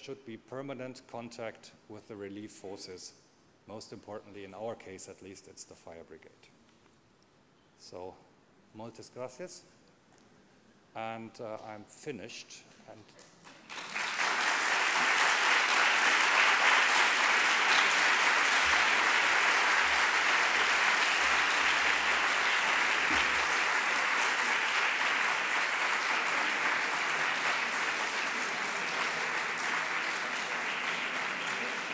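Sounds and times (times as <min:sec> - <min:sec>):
audience applauding: 0:13.5 - 0:31.9.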